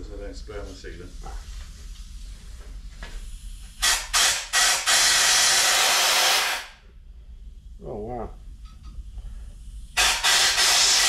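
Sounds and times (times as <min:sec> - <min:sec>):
compressed air blow gun hissing: 0:03.2 - 0:06.8, 0:09.7 - 0:11.0.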